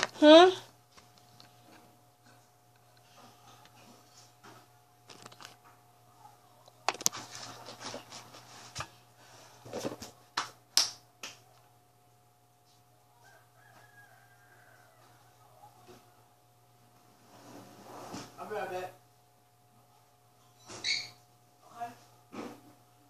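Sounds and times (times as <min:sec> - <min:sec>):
faint low hum: 0:00.0 - 0:23.0.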